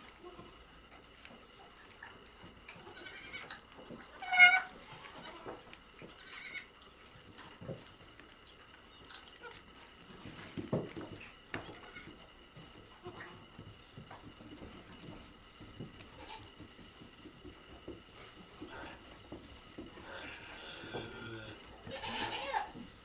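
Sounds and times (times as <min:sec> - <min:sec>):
shuffling in straw: 0:00.0 - 0:03.2, 0:04.2 - 0:08.8, 0:09.4 - 0:23.0
goat kids bleating: 0:02.7 - 0:06.7, 0:11.7 - 0:12.2, 0:12.9 - 0:13.6, 0:16.0 - 0:16.6, 0:18.6 - 0:22.8.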